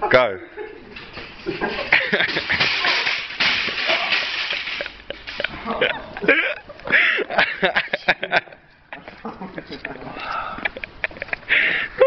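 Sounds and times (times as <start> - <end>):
trolley crashing over: 1.6 - 5.9
shopping trolley rattling over paving: 1.7 - 5.7.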